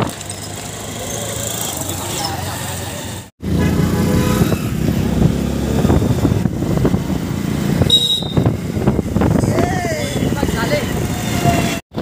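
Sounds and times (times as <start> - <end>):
motorcycle engines running: 0.0 - 12.0.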